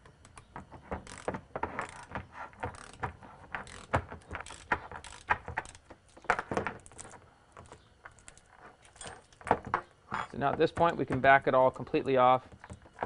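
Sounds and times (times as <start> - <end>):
ratchet wrench clicking: 1.0 - 2.1, 2.7 - 3.0, 3.6 - 5.8.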